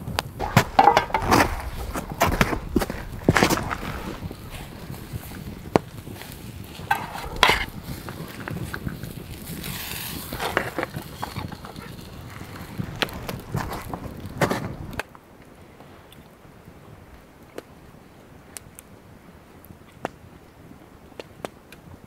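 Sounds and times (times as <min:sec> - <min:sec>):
campfire crackling and popping: 0:00.0 - 0:22.0
metal clinking and scraping: 0:00.4 - 0:05.3, 0:06.8 - 0:07.8.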